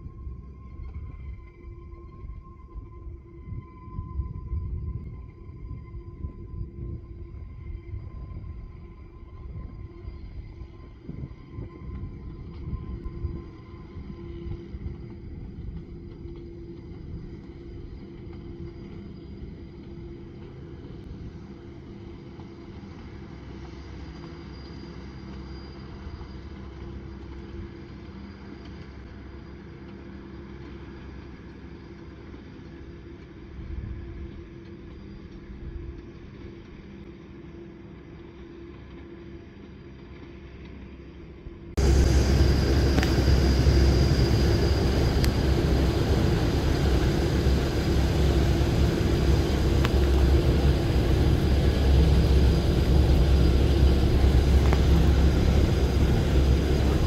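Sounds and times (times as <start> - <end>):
electric train rumbling: 41.8 - 57.0
steady motor hum: 41.8 - 57.0.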